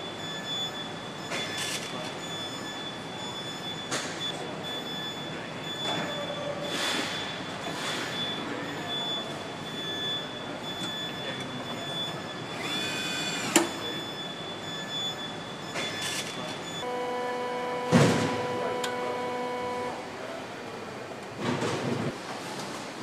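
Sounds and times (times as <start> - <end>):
machine hum with whine: 12.5 - 22.1.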